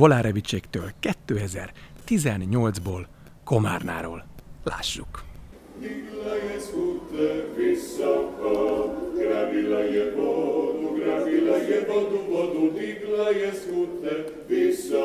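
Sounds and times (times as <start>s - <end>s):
a cappella choir singing: 5.6s - 15.0s.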